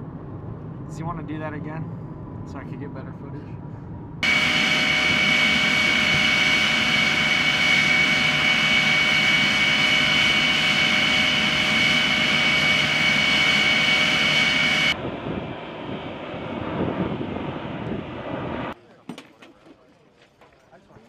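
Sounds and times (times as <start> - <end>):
distant aircraft rumble: 0.0 - 19.0
jet engine whine: 3.7 - 18.8.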